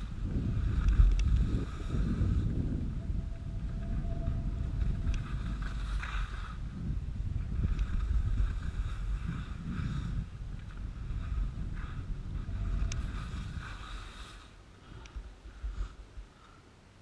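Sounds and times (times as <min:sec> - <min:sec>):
wind rushing over microphone: 0:00.0 - 0:16.4
skis scraping over packed snow: 0:04.8 - 0:14.6.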